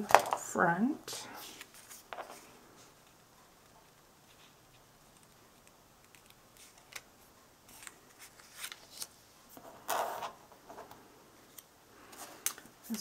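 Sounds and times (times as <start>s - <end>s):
paper rustling on cutting mat: 7.7s - 10.4s.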